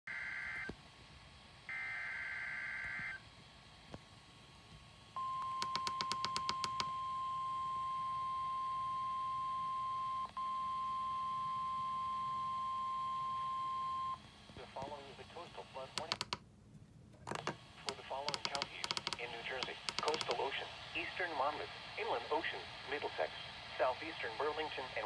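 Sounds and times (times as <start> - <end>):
steady warning alarm tone: 5.2 - 14.2.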